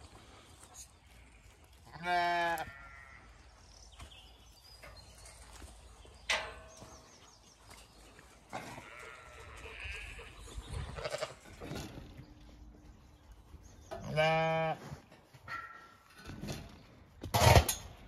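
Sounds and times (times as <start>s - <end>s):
sheep bleating: 1.4s - 3.4s, 8.5s - 10.4s, 14.0s - 14.9s.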